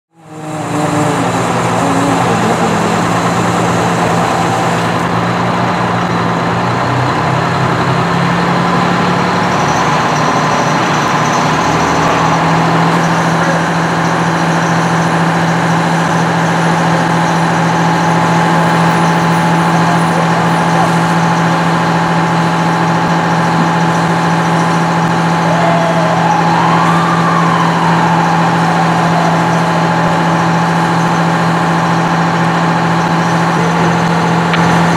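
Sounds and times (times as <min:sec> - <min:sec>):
diesel truck engine running: 0:00.1 - 0:34.9.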